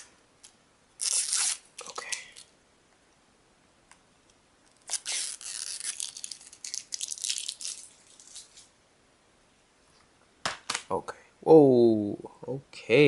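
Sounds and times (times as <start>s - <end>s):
plastic wrapping tearing and crinkling: 1.0s - 2.5s, 4.7s - 8.7s.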